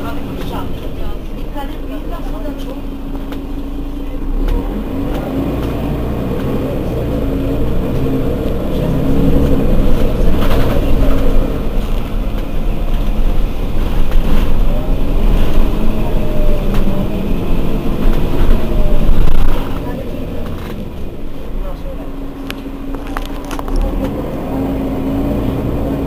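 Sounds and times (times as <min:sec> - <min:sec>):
bus engine running: 0:00.0 - 0:26.0.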